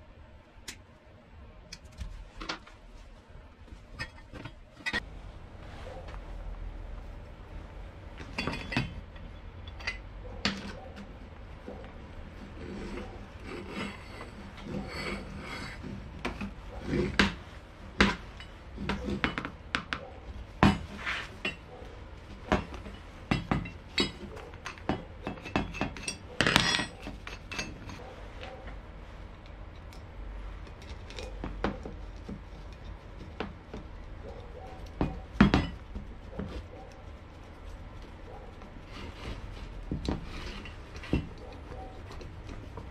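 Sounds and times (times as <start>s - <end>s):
steel parts clicking and knocking: 8.2s - 11.2s, 22.3s - 28.5s.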